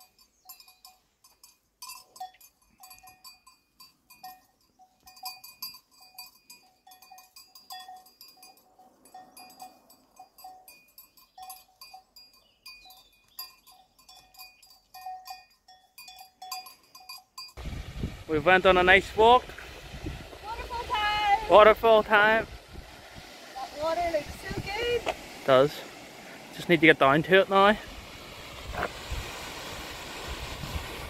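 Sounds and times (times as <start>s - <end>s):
livestock bells clanking: 0.0s - 17.6s.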